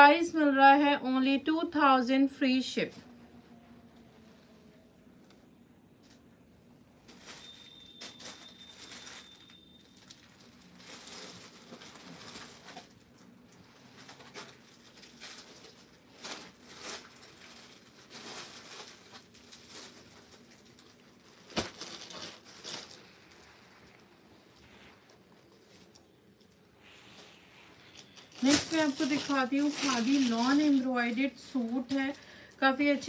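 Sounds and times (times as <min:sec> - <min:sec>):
thin high tone: 0:07.1 - 0:10.2
cloth rustling: 0:13.6 - 0:32.2.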